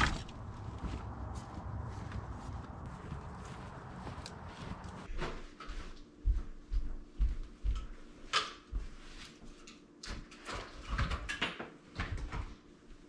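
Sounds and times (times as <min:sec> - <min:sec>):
footsteps on hardwood floor: 0:00.4 - 0:09.6.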